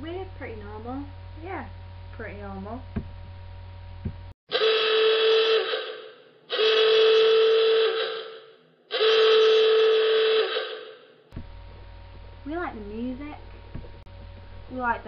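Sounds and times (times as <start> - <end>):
loud horn blasts: 4.5 - 11.2.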